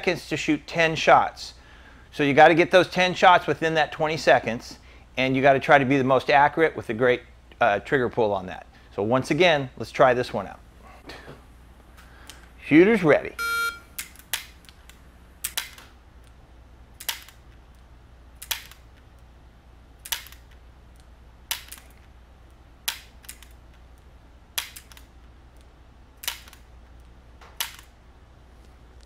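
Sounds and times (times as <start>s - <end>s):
air pistol dry-fire clicks: 24.6s - 27.9s.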